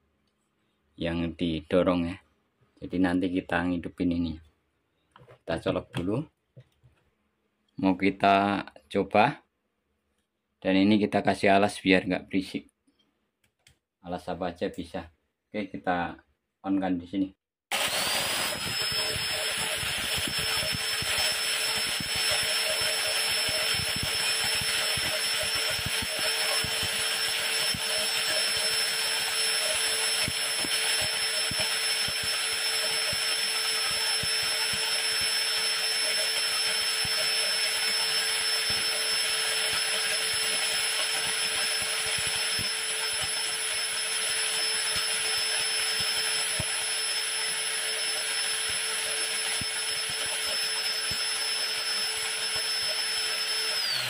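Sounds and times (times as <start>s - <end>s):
angle grinder grinding corn: 17.7s - 54.0s.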